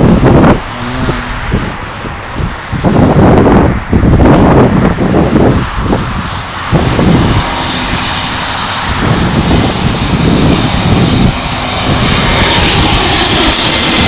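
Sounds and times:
high engine whine: 0.0 - 14.0
jet airliner engines: 0.0 - 14.0
wind buffeting microphone: 0.0 - 14.0.

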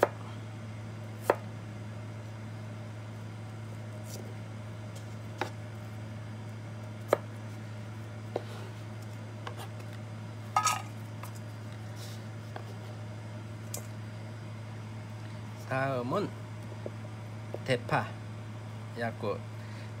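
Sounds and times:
steady low hum: 0.0 - 20.0
slices clattering into steel bowl: 10.6 - 10.9.

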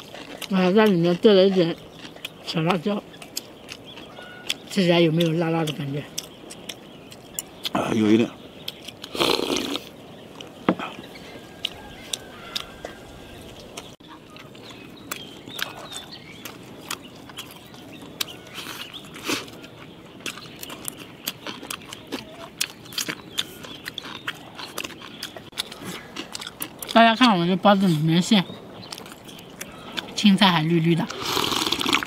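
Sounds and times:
people chewing and smacking: 0.0 - 32.0
farm fowl calling: 4.1 - 4.5, 11.2 - 13.5.

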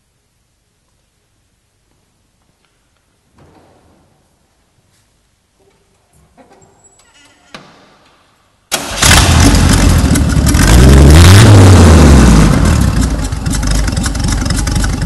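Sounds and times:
truck engine starting and idling: 8.7 - 15.0.

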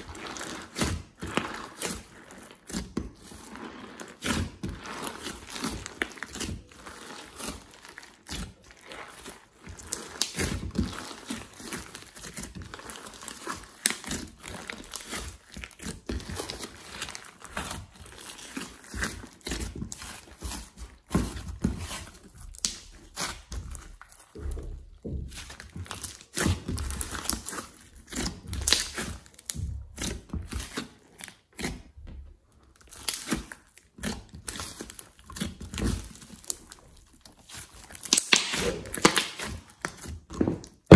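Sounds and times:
wet squishes of kneaded slime: 0.0 - 40.9
crackling clicks of slime: 22.5 - 23.3, 37.4 - 40.9.

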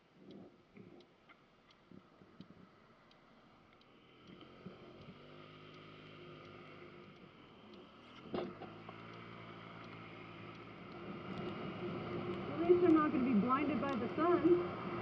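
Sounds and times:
scooter engine humming: 4.0 - 15.0.

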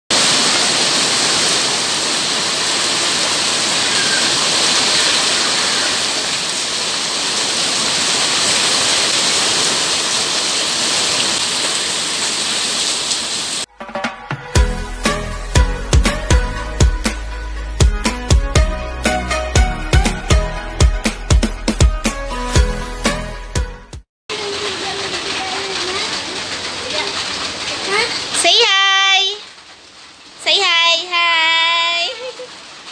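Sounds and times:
heavy rain on paving: 0.1 - 13.7, 24.3 - 32.9.

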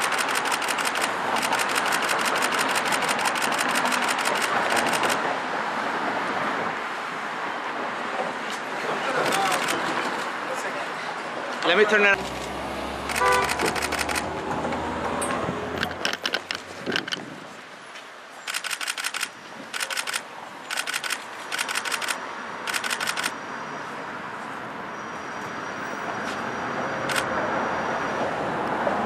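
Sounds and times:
camera shutters clicking in bursts: 0.0 - 5.2, 9.2 - 9.9, 12.2 - 14.3, 15.8 - 17.2, 18.5 - 23.4, 27.1 - 27.3
street noise hiss: 0.0 - 29.0.

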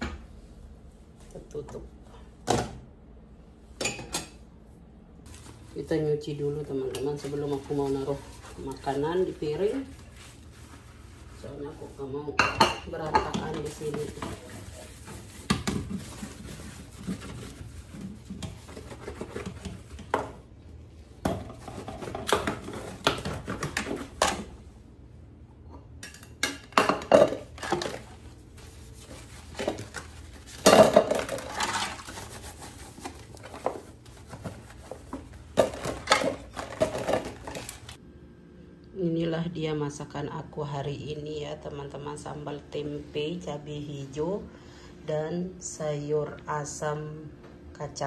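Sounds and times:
sponge scrubbing: 7.3 - 12.2, 13.4 - 20.0, 27.9 - 30.6, 31.2 - 35.3.

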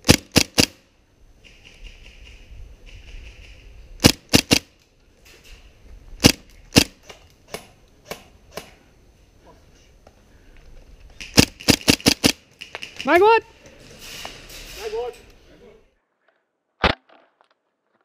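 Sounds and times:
airsoft gun shots: 0.0 - 0.8, 3.0 - 4.7, 6.2 - 8.7, 11.2 - 13.1.

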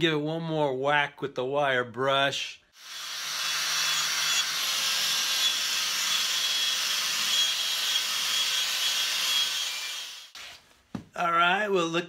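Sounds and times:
wire brush grinder scrubbing metal: 2.8 - 10.4.

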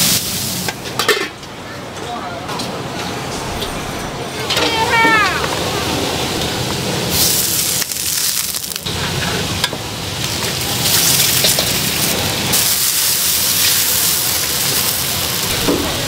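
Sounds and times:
food sizzling on a griddle: 0.0 - 0.7, 6.5 - 16.0.

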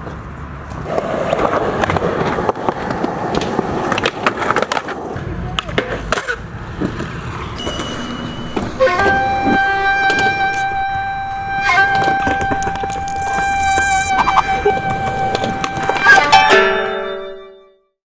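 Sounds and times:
skateboards rolling on concrete: 0.0 - 16.9
skateboards clacking: 0.0 - 17.2
held tone with overtones: 7.6 - 17.6
steady high tone: 7.6 - 17.6.

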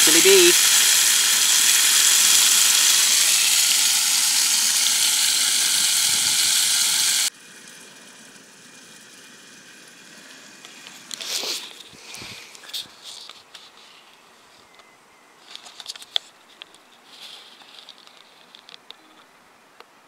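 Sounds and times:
meat and peppers sizzling in pot: 0.0 - 11.8.

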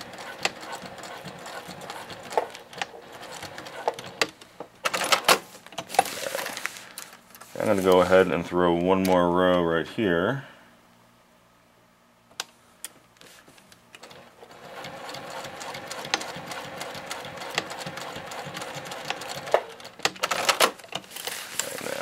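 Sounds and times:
sewing machine stitching: 0.0 - 4.3, 14.0 - 20.8.

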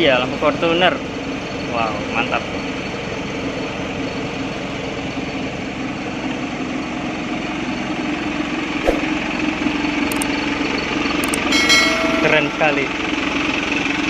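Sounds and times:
truck engine idling: 2.8 - 14.0
short click: 11.2 - 11.5.

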